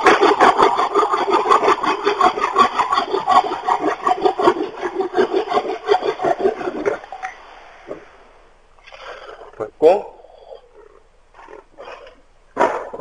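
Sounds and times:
hand saw cutting wood: 0:00.0 - 0:07.1.

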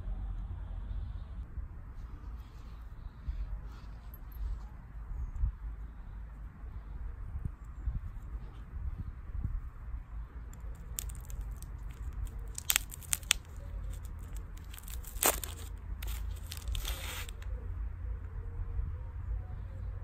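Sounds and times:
steady low rumble: 0:00.0 - 0:20.0
plastic wrapper crinkling and tearing: 0:10.6 - 0:17.4.

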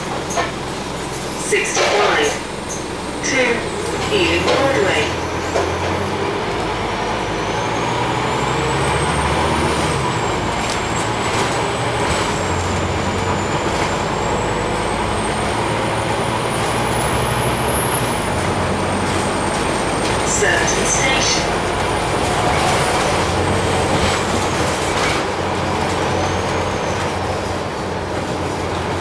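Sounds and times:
bus engine and road noise: 0:00.0 - 0:29.0.

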